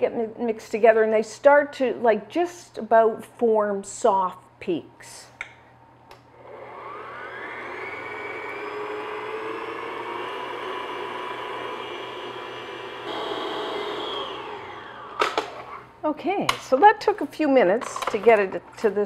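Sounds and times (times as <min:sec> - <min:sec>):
stand mixer motor whining: 0:06.4 - 0:15.7.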